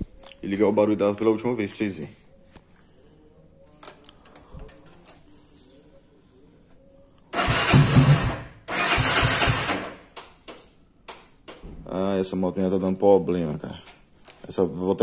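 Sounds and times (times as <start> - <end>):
motorcycle electric starter cranking: 7.3 - 10.1.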